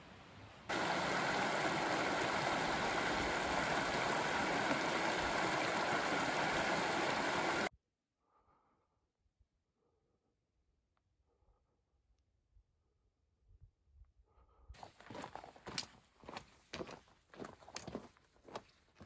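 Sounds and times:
creek rushing over rocks: 0:00.7 - 0:07.7.

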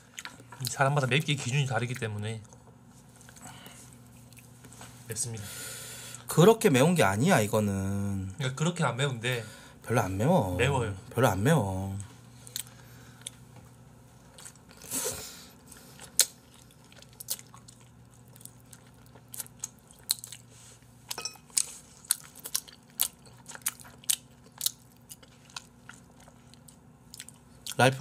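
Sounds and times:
person chewing food: 0:02.4 - 0:04.5, 0:12.4 - 0:13.5, 0:14.2 - 0:27.8.

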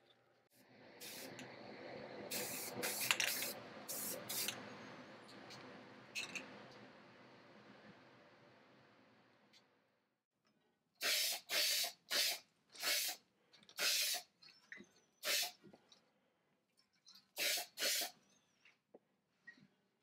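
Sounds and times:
spray paint can hissing: 0:01.0 - 0:01.4, 0:02.3 - 0:04.6, 0:11.0 - 0:13.2, 0:13.8 - 0:14.3, 0:15.2 - 0:15.6, 0:17.4 - 0:18.2.

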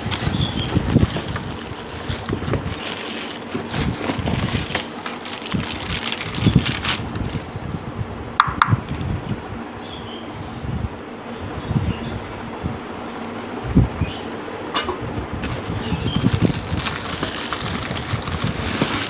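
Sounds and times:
plastic bags crinkling: 0:00.7 - 0:07.4, 0:15.5 - 0:19.0.

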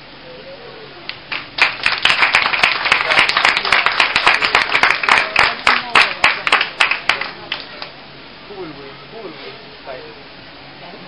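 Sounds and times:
audience clapping: 0:01.1 - 0:07.9.

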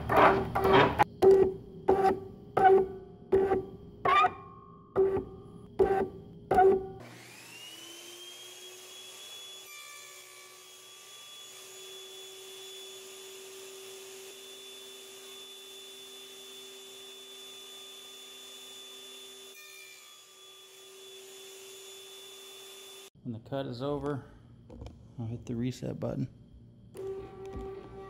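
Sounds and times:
table saw motor whine: 0:02.0 - 0:23.1, 0:27.0 - 0:28.0.

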